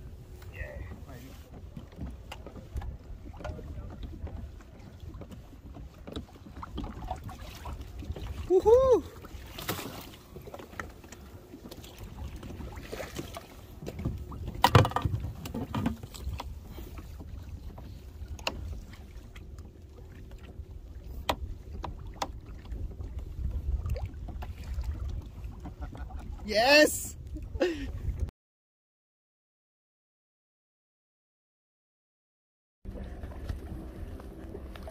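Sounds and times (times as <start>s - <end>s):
water moving around hull: 0.0s - 28.3s, 32.9s - 34.9s
wind on microphone: 20.3s - 28.3s.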